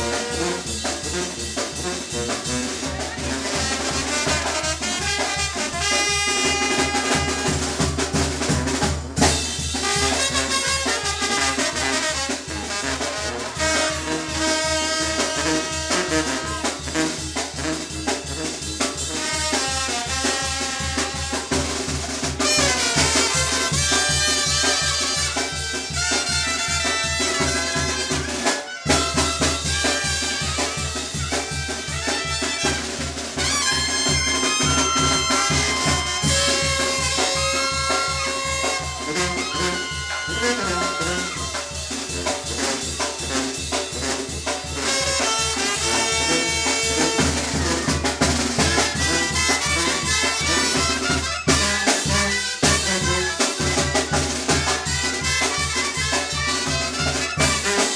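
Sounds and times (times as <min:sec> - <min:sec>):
snare drum and cymbal beat: 0:00.0 - 0:57.9
trumpets and brass horns: 0:00.0 - 0:57.9
sousaphone bass line: 0:34.4 - 0:41.9.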